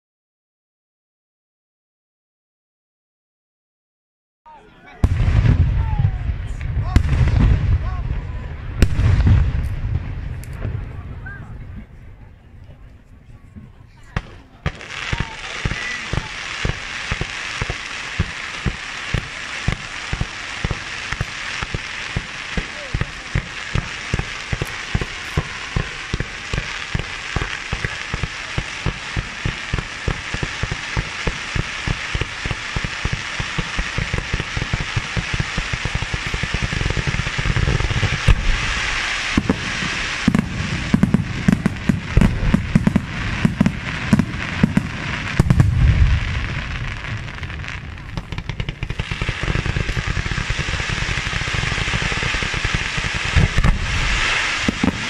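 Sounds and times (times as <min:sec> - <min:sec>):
crackle and hiss of burning comets: 0:05.0 - 0:12.7, 0:14.2 - 0:55.0
firework launch thumps: 0:34.0 - 0:55.0.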